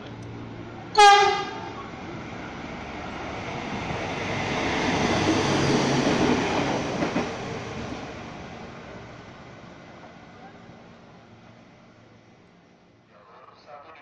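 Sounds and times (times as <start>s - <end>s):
train running past: 0.0s - 13.4s
train horn blast: 1.0s - 1.7s.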